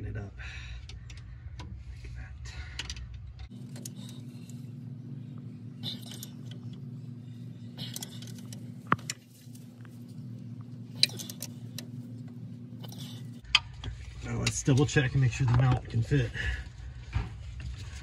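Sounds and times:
steady low hum: 0.0 - 18.0
wrench clinking and scraping metal: 10.9 - 12.0.

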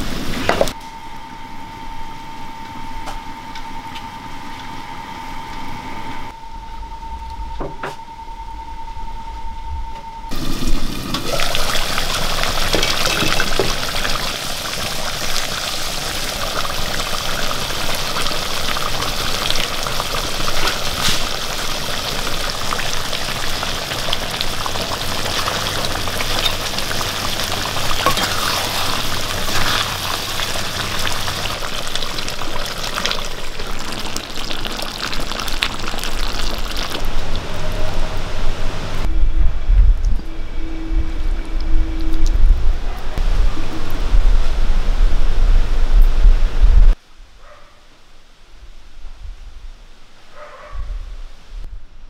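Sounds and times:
curry sizzling and bubbling: 10.3 - 39.1.

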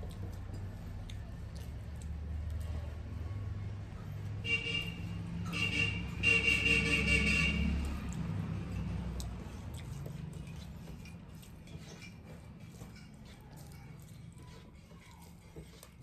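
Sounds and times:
eating from steel plates: 0.0 - 16.0
engine rumble: 0.0 - 16.0
vehicle horn honking: 4.4 - 7.9.

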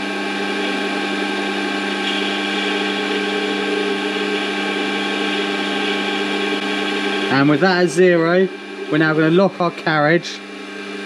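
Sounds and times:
lathe running: 0.0 - 11.0.

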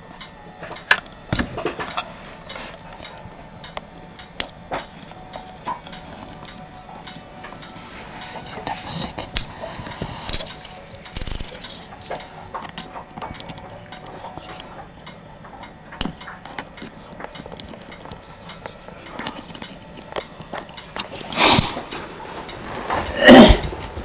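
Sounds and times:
screwdriver clicking and scraping metal: 8.6 - 12.8.

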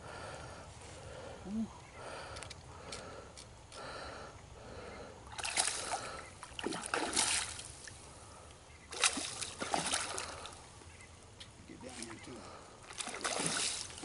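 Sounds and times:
fish splashing at water surface: 5.3 - 8.0, 8.9 - 10.6, 12.9 - 14.0.

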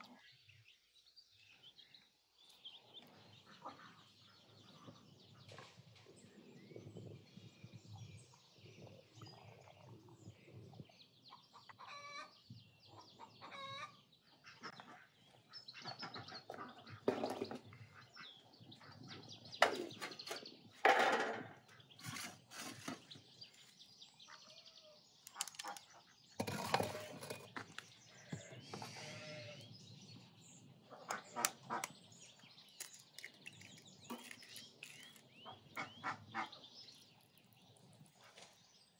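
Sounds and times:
poultry calling: 11.8 - 12.3, 28.1 - 29.7, 34.2 - 36.6.

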